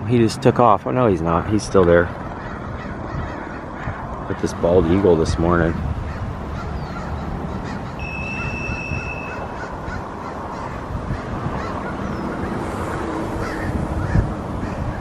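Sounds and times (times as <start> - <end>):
steady outdoor rush: 0.0 - 15.0
crows cawing: 2.1 - 4.3, 5.7 - 15.0
high whistle: 8.0 - 9.5.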